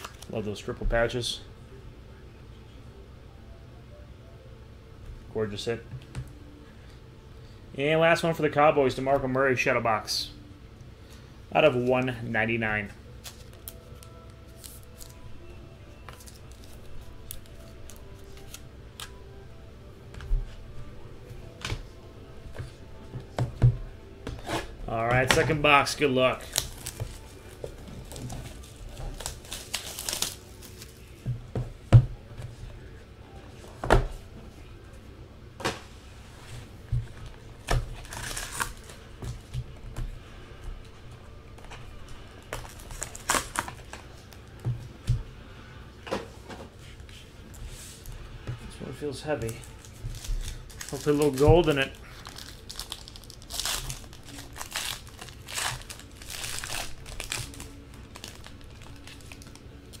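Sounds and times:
wrapper crinkling: 25.1 - 31.2, 37.9 - 39.0, 42.3 - 44.0, 49.4 - 60.0.

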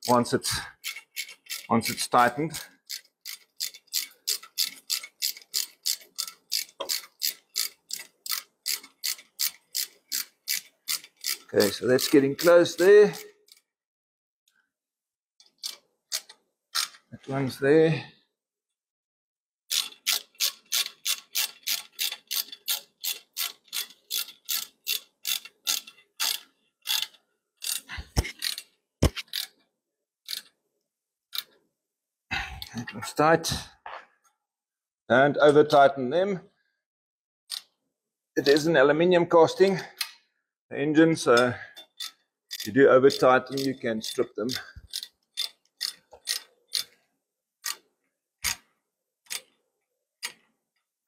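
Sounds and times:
socket ratchet clicking: 0.8 - 13.6, 19.7 - 29.6, 30.3 - 30.5, 41.8 - 47.0.

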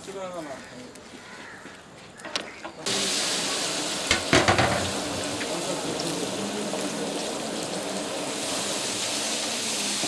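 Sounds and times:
curry sizzling and bubbling: 2.8 - 10.0.

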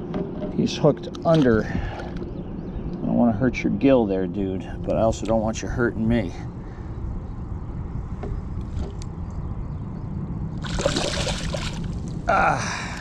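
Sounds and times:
steady low rumble: 0.0 - 13.0
fish splashing at water surface: 10.6 - 11.9.

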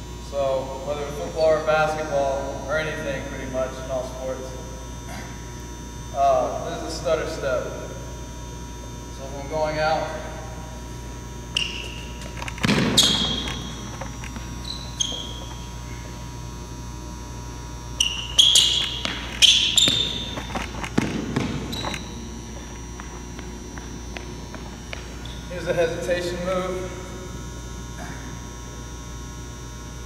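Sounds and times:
electrical hum: 0.0 - 30.0
sneakers squeaking: 9.4 - 28.6
footfalls thudding on gym floor: 12.6 - 13.4, 20.8 - 21.9.

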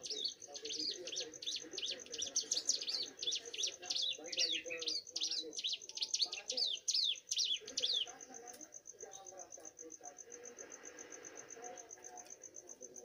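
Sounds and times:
bird chirping rapidly: 0.0 - 8.2.

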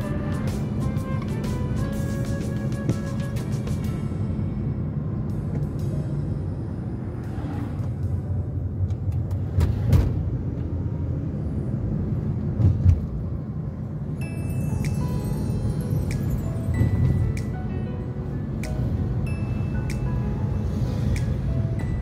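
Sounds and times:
car road noise rumble: 0.0 - 22.0.

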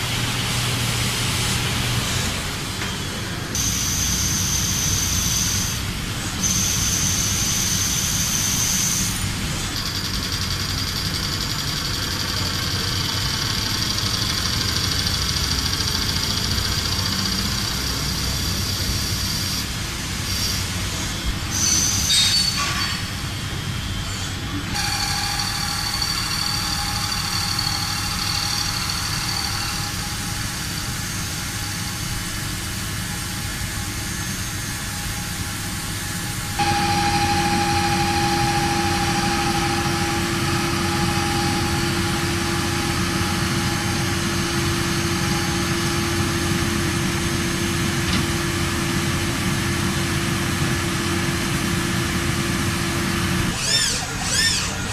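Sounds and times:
high spindle whine: 1.5 - 54.9
machine cutting metal: 24.1 - 51.4
steady tones: 36.3 - 47.3.

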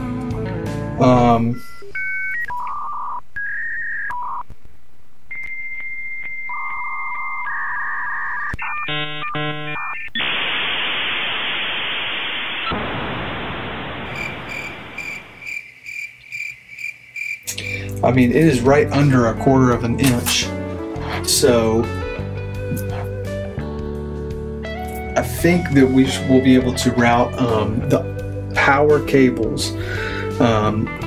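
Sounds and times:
modem beeping tones: 1.4 - 4.4, 5.3 - 10.4
rapidly alternating tones: 5.2 - 15.6
loud hissing static: 9.7 - 15.6
crickets chirping: 13.6 - 17.9.

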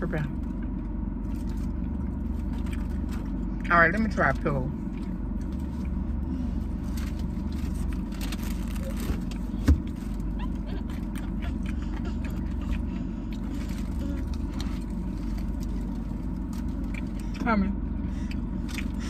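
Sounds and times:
car cabin hum: 0.0 - 19.0
person eating crunchily: 6.7 - 17.4.

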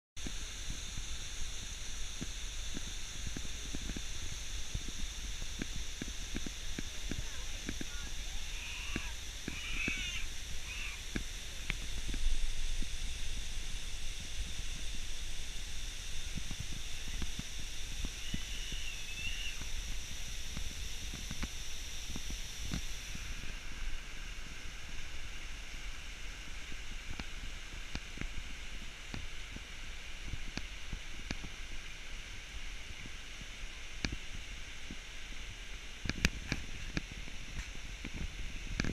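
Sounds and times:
small waterfall rushing: 0.2 - 38.9
wind rumbling on microphone: 0.2 - 38.9
wavering high call: 7.9 - 11.1, 17.9 - 19.7.

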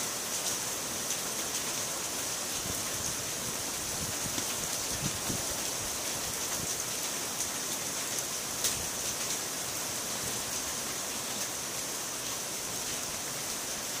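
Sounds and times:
heavy rain on corrugated roofs: 0.0 - 14.0.

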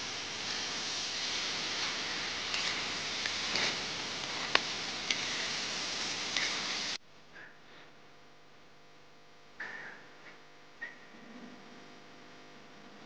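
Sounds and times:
chicken sizzling in a wok: 0.0 - 7.0
metal spatula scraping a pan: 1.7 - 7.0.

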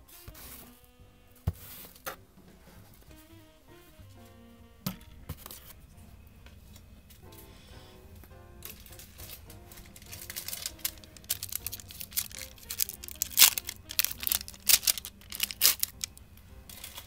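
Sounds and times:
foil wrapper crinkling and tearing: 8.6 - 17.0.

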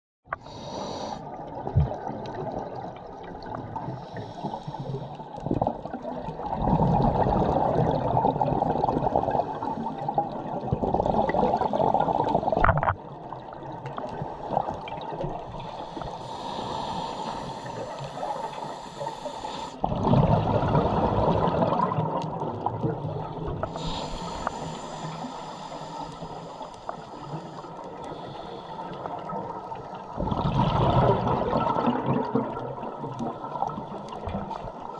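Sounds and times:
hissing regulator inhales: 0.4 - 1.2, 3.9 - 5.2, 15.6 - 19.8, 23.6 - 29.2
bubbling exhales underwater: 1.4 - 4.1, 5.4 - 15.4, 19.8 - 24.6, 29.1 - 34.9.

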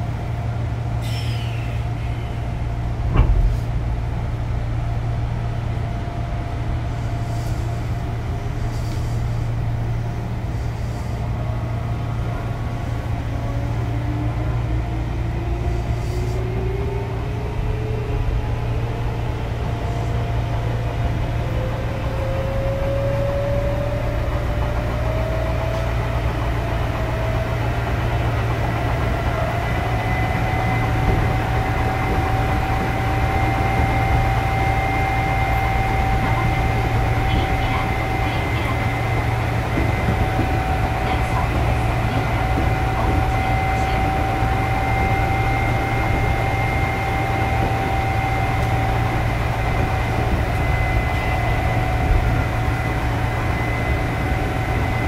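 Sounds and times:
train wheels rumbling on track: 0.0 - 55.0
electric train motor whine: 21.5 - 55.0.

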